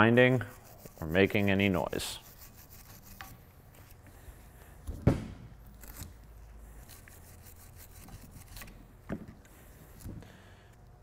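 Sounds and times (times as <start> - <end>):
wire brush scrubbing metal: 0.1 - 3.4, 6.8 - 8.6.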